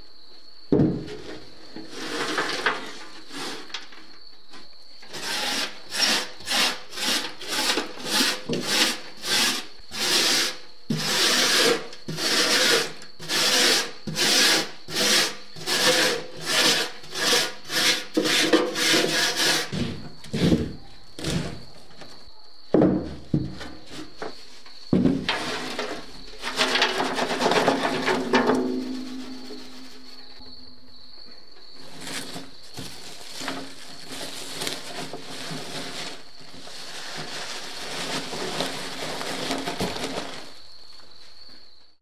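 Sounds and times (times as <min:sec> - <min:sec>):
knocks: 0:22.7 - 0:23.7
wire brush scrubbing metal: 0:25.3 - 0:30.4.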